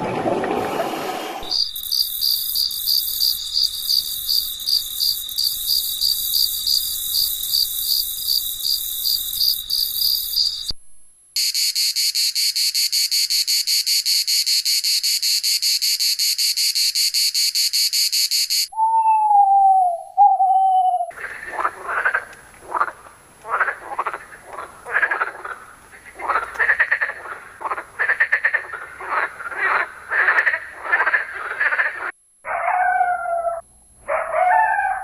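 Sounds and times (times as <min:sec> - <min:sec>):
crickets chirping: 0:01.4 - 0:10.8, 0:11.4 - 0:18.8, 0:21.1 - 0:35.0.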